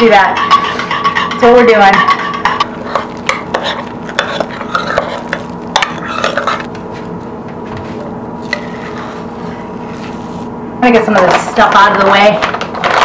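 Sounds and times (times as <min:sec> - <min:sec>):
spatula scraping a ceramic bowl: 0:00.2 - 0:06.7, 0:08.4 - 0:10.5
faint hum: 0:02.4 - 0:13.0.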